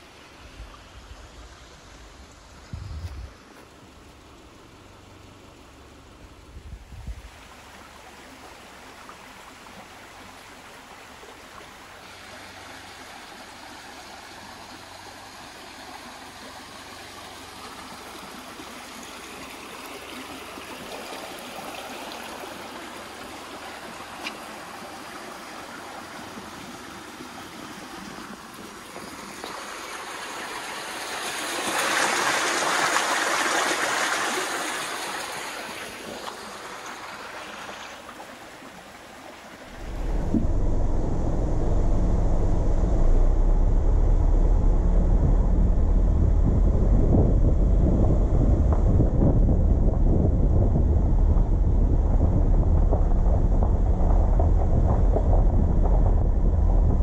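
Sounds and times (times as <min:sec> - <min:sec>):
car road and tyre noise: 0:00.0 - 0:57.0
low thumps: 0:39.7 - 0:57.0.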